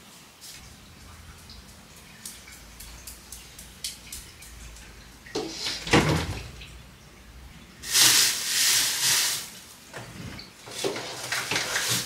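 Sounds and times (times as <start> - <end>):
refrigerator door opening: 5.6 - 6.5
loud rustling hiss: 7.8 - 9.7.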